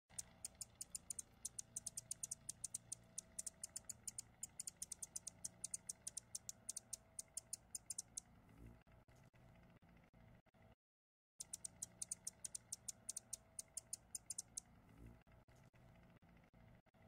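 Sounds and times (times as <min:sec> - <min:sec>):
high-pitched ticks: 0:00.1 - 0:08.3, 0:11.4 - 0:14.8
faint low hum: 0:11.4 - 0:17.0.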